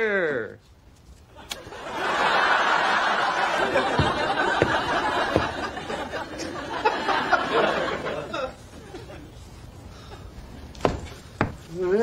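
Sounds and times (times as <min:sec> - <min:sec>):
studio audience laughing: 0:01.4 - 0:09.3
low thumps: 0:03.7 - 0:06.2.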